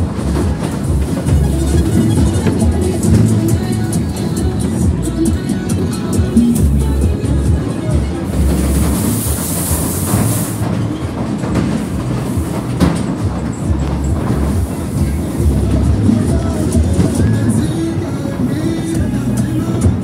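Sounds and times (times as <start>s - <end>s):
ride cars clattering on track: 0.0s - 20.0s
hiss: 8.4s - 10.9s.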